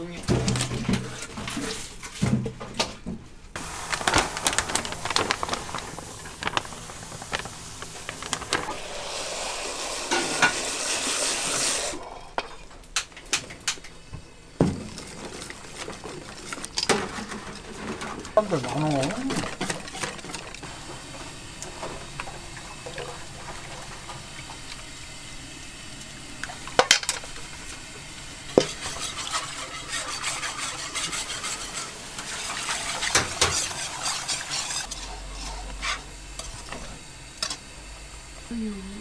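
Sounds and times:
wire whisk scraping metal: 0:28.6 - 0:36.0.

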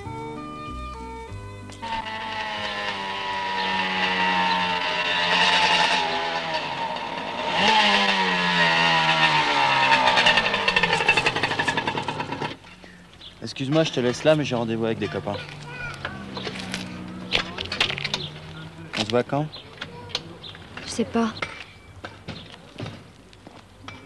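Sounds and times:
small motorcycle engine revving: 0:01.8 - 0:12.7, 0:15.0 - 0:18.9.

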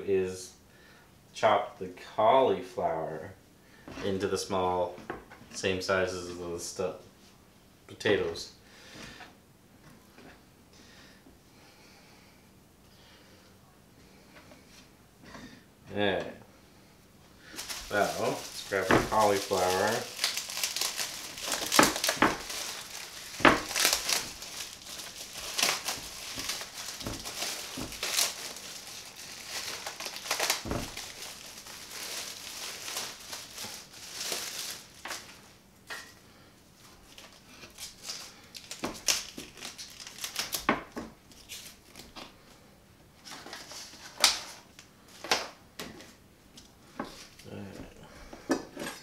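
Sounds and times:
plastic wrap crinkling: 0:17.4 - 0:35.6, 0:36.9 - 0:42.2.

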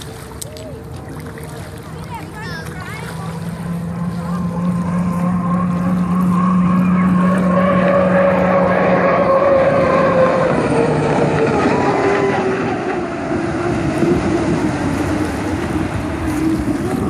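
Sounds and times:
racing boat engine drone: 0:00.0 - 0:17.0.

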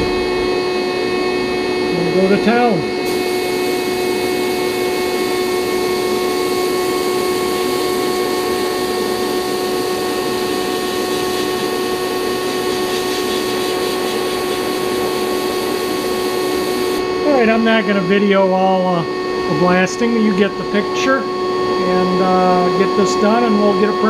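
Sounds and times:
motor hum: 0:00.0 - 0:18.2
blast cabinet air hiss: 0:03.1 - 0:03.9, 0:10.6 - 0:17.0.

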